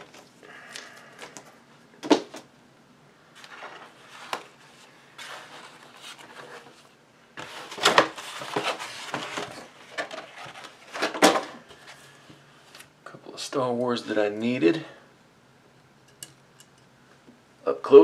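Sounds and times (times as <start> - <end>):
plastic and cardboard rustling: 0.0 - 2.5, 3.4 - 12.8.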